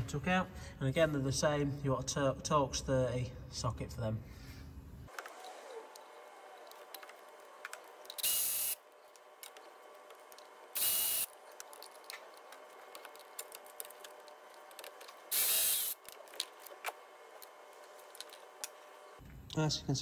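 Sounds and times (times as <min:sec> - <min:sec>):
power tool whirring: 0:05.1 - 0:19.2.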